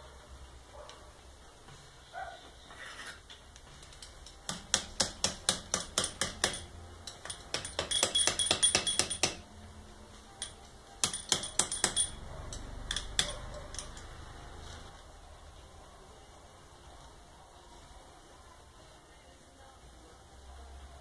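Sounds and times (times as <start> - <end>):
ringing metallic clinks: 5.8 - 9.5, 10.4 - 14.2.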